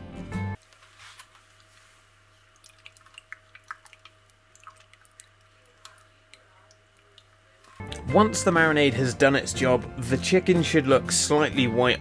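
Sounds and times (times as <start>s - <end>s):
hands squishing raw chicken: 0.6s - 7.3s.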